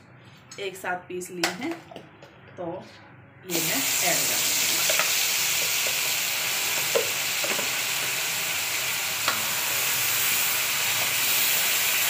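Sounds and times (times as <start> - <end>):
paste sizzling in hot oil: 3.5 - 12.0.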